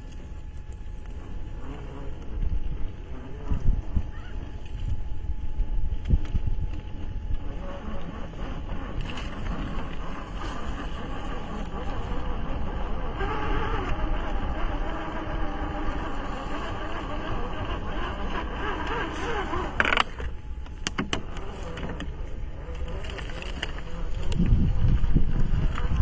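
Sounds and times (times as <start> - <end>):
low rumble: 0.0 - 26.0
toy car electric motor whining: 1.1 - 5.0, 7.4 - 20.4, 21.2 - 26.0.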